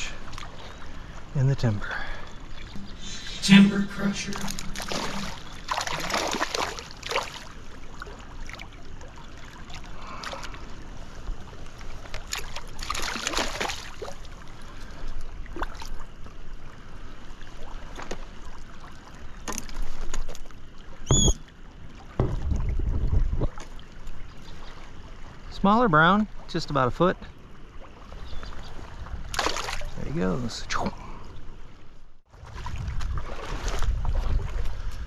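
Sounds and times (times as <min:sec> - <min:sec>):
running water: 0:00.0 - 0:10.6.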